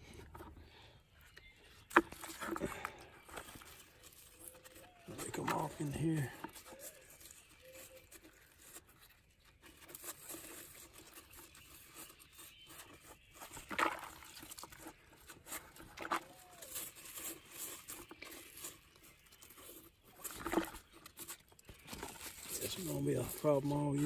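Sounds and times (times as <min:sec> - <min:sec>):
hands scraping leaves: 0:01.4 - 0:24.0
leaf tearing: 0:01.4 - 0:24.0
leaves rustling and crackling: 0:02.0 - 0:24.0.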